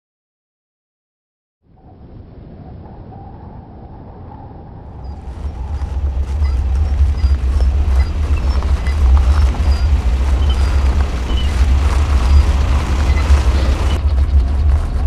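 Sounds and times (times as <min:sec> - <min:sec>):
excavators rumbling: 0:04.5 - 0:15.0.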